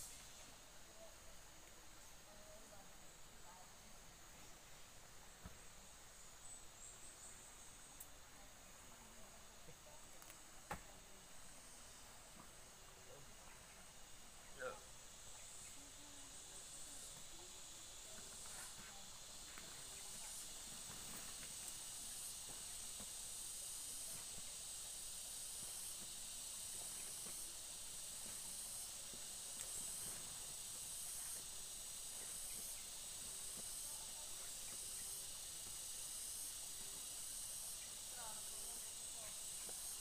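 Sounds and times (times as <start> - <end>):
insect chorus buzzing: 0.0 - 40.0
faint ticks: 29.5 - 30.2.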